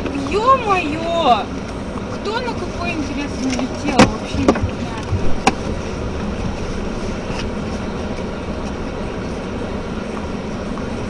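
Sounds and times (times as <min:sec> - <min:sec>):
car road and engine noise: 0:00.0 - 0:11.0.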